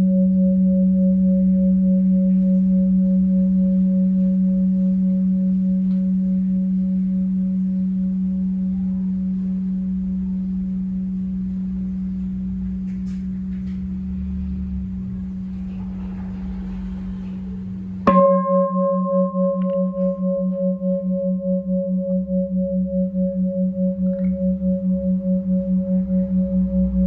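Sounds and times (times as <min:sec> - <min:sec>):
mallet striking bell: 0:12.2 - 0:27.0
bronze bowl bell ringing: 0:14.7 - 0:27.0.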